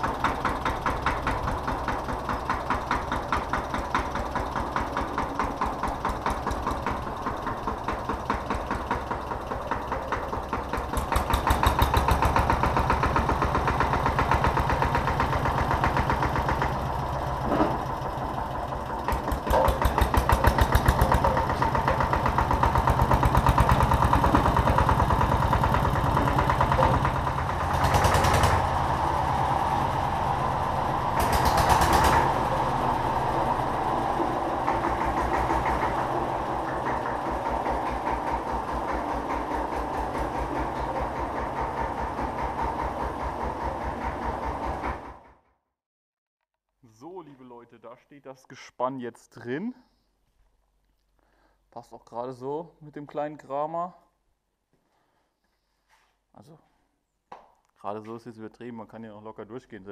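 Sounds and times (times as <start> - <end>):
tractor diesel engine chugging: 0.0 - 45.4.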